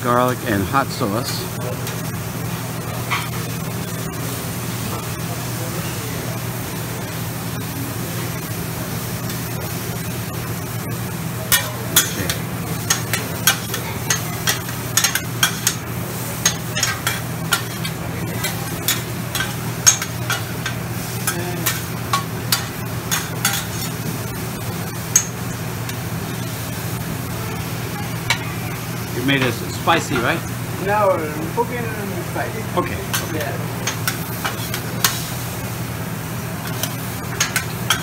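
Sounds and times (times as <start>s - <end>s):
food sizzling on a griddle: 0.0s - 38.0s
metal spatulas scraping a griddle: 16.4s - 24.0s.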